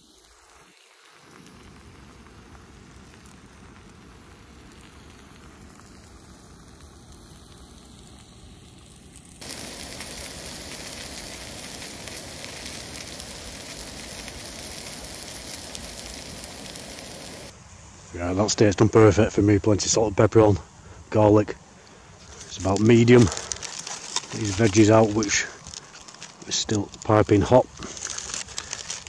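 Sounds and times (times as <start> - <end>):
steak sizzling in a pan: 0.0 - 17.5.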